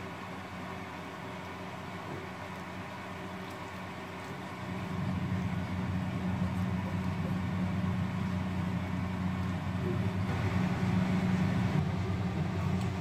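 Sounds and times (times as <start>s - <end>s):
kitchen appliance humming: 4.7s - 13.0s.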